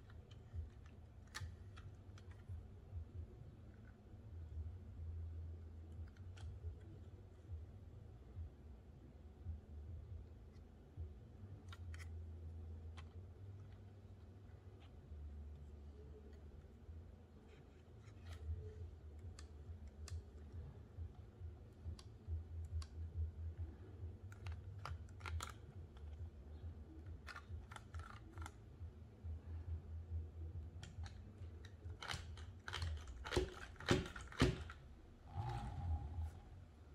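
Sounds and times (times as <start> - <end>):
low steady hum: 0.0 - 36.9
plastic toy clicks and taps: 31.9 - 34.8.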